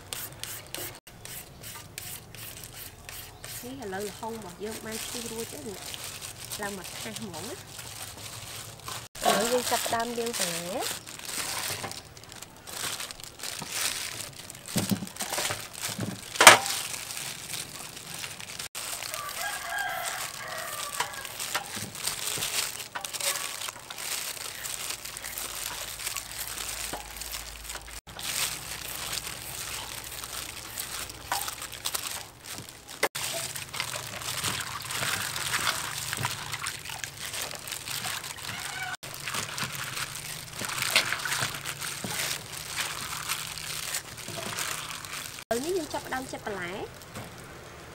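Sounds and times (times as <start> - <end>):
rustling of greens: 0.0 - 47.9
rooster crowing: 18.9 - 21.5, 38.4 - 39.0.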